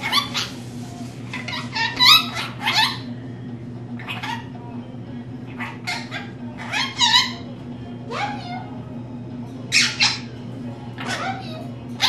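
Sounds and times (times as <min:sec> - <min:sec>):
lorikeet high-pitched calls: 0:00.0 - 0:00.6, 0:01.4 - 0:03.1, 0:04.0 - 0:04.5, 0:05.5 - 0:07.5, 0:09.7 - 0:10.3.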